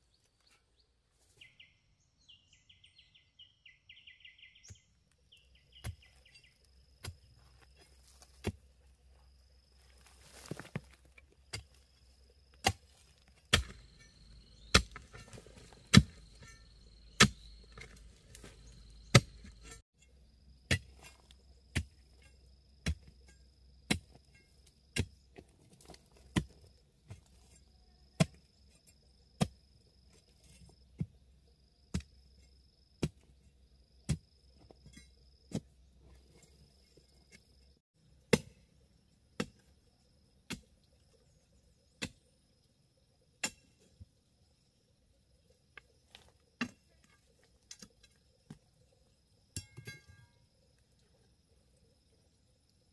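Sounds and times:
hand tool chopping: 12.6 - 19.8.

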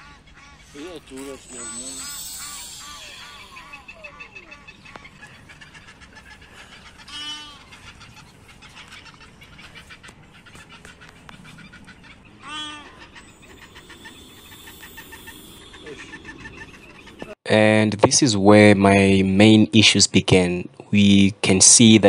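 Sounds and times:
loud short bird calls: 0.0 - 9.2
small birds chirping: 0.1 - 17.4.

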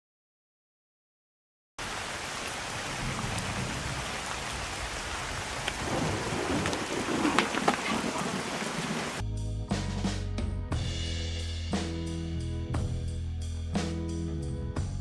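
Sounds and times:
steady rain falling: 1.8 - 9.2.

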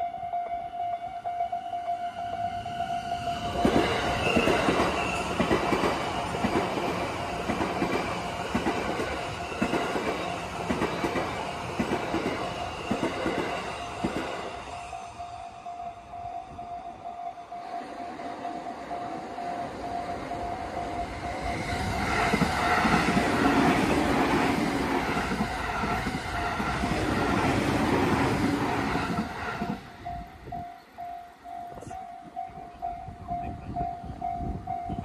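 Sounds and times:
train wheels rumbling and clattering: 3.2 - 14.8, 19.6 - 30.9.

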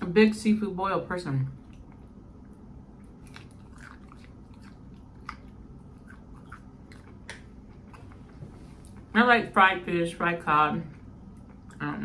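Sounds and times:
low steady hum: 0.0 - 12.0
person chewing food: 1.6 - 9.1, 10.9 - 11.8.

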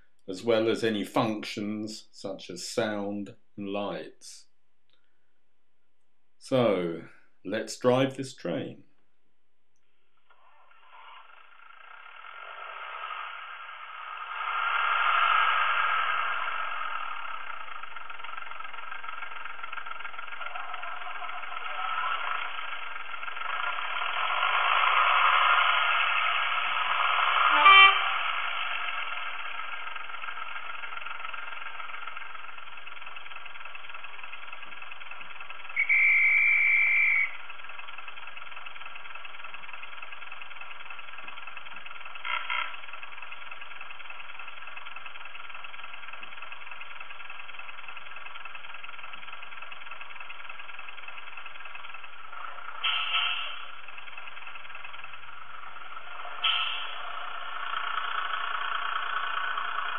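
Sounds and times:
diesel engine idling through small speaker: 0.0 - 5.6, 6.4 - 9.1, 9.9 - 59.9
high steady tone: 20.4 - 30.2, 35.6 - 37.5
short electronic blips: 35.8 - 37.4.

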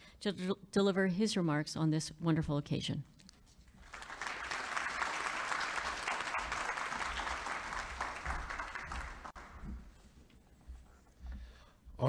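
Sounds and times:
audience applauding: 3.8 - 9.7.

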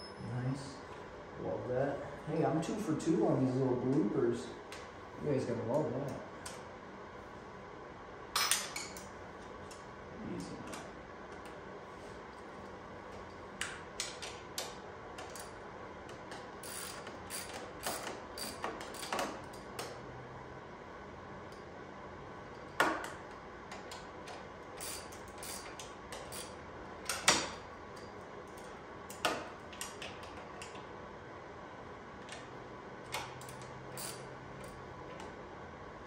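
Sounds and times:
socket ratchet clicking: 16.6 - 19.9, 24.8 - 27.5, 33.1 - 34.8.

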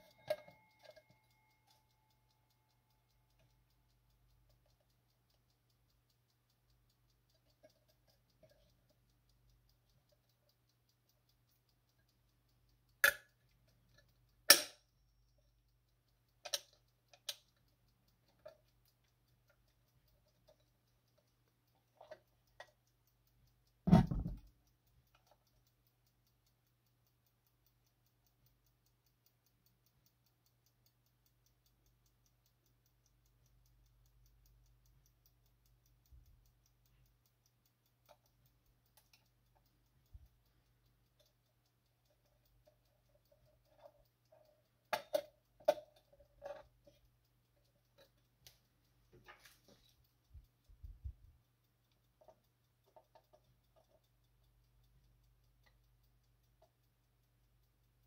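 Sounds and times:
metal clock clicks and knocks: 0.0 - 3.7, 12.9 - 14.9, 16.3 - 22.9, 23.7 - 25.6, 42.0 - 50.1
dull thump: 23.9 - 24.4.

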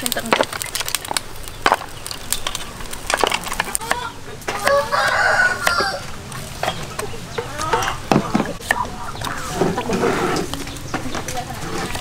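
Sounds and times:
rooster crowing: 4.5 - 6.2.

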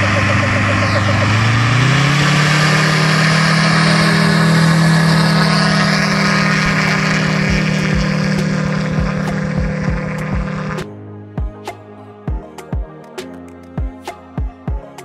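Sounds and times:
aircraft engine and propeller revving: 0.0 - 10.9.

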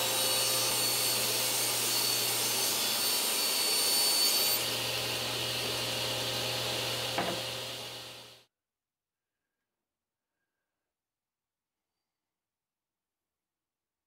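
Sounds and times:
table saw cutting plywood: 0.0 - 8.4.

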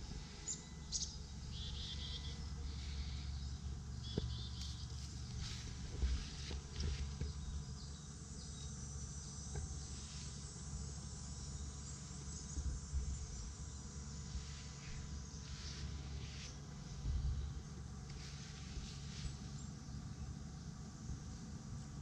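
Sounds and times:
insects chirring: 0.1 - 22.0.

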